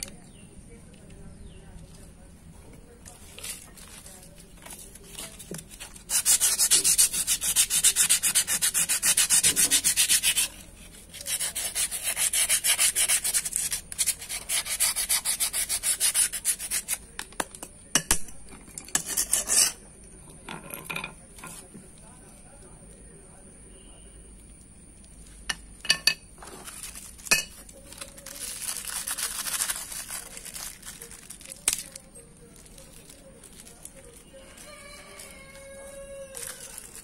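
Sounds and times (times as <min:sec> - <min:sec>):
sandpaper scrubbing steel: 0:05.9 - 0:17.0.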